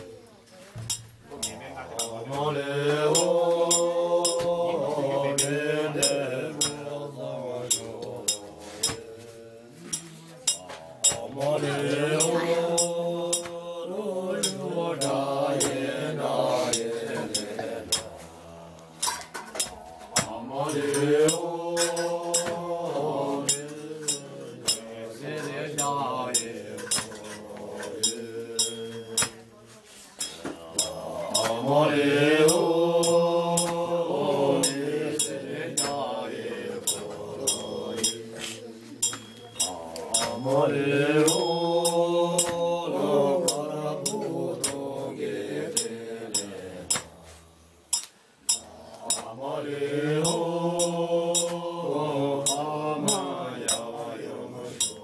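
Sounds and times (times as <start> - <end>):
men chanting prayers in unison: 0.0 - 55.0
sharp metallic clinks: 27.9 - 29.4, 36.8 - 40.6.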